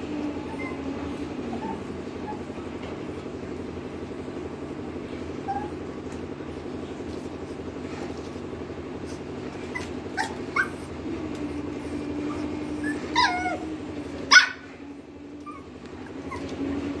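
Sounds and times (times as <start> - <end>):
puppy whining: 0.1 - 3.2, 5.3 - 6.2, 9.0 - 17.0
puppy yipping and barking: 9.6 - 11.0, 11.8 - 14.7, 15.4 - 16.6.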